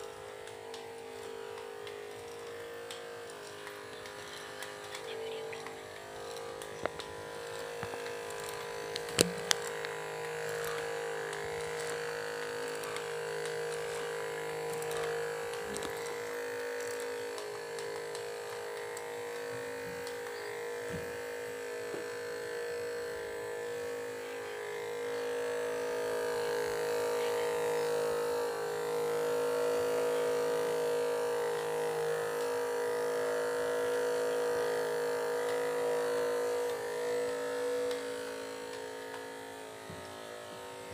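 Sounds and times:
electric motor buzzing whine: 0:00.0 - 0:40.9.

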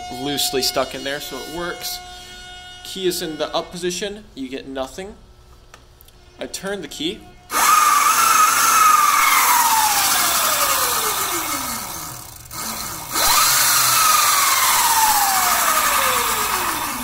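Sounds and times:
electric motor whining: 0:07.5 - 0:17.0.

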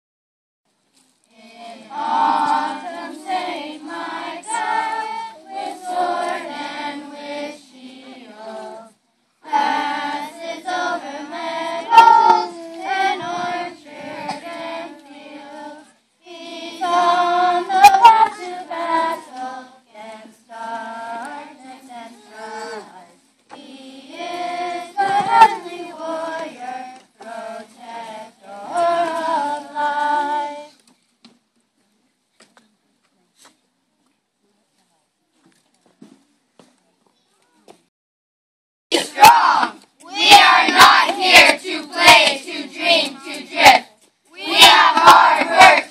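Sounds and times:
children singing: 0:01.3 - 0:23.0, 0:23.6 - 0:30.7, 0:38.9 - 0:45.9.

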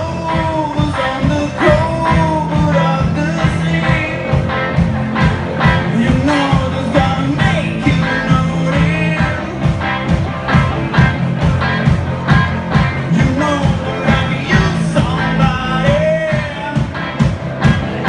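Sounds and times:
man singing through pa: 0:00.0 - 0:04.4, 0:05.8 - 0:09.8, 0:13.1 - 0:17.0
drums keeping a beat: 0:00.0 - 0:18.0
live rock band playing: 0:00.0 - 0:18.0.

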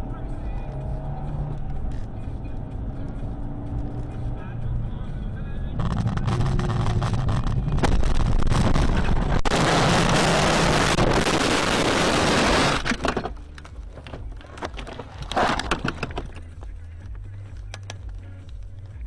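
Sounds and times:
road and engine noise: 0:00.0 - 0:19.0
knocks and rattles: 0:12.7 - 0:16.7.

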